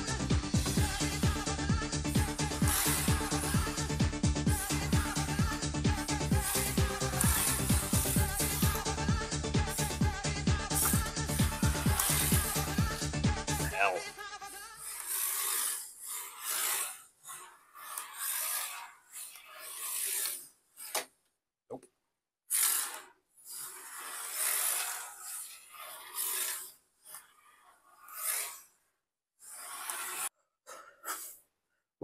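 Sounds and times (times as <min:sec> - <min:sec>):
tyres scrubbing on wood: 0:00.6 - 0:21.1, 0:22.5 - 0:28.8, 0:29.4 - 0:30.3
small electric motor whirring: 0:14.7 - 0:21.0.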